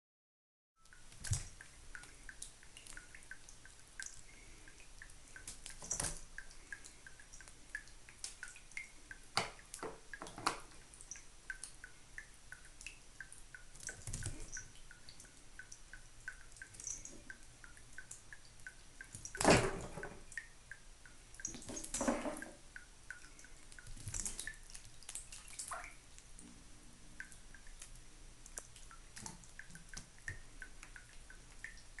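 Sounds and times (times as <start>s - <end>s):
water dripping into sink: 0.8s - 32.0s
cat knocking and scuffling in sink: 19.4s - 20.2s, 21.6s - 22.6s.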